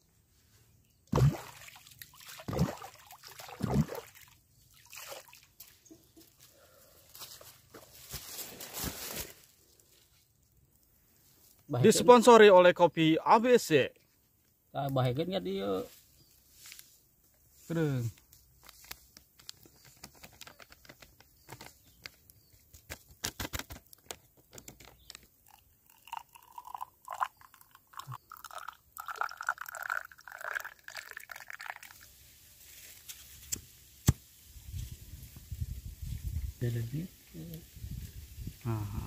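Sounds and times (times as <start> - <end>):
powder shaken from paper sachet: 19.5 - 22.2
water pouring into cup: 25.4 - 32.1.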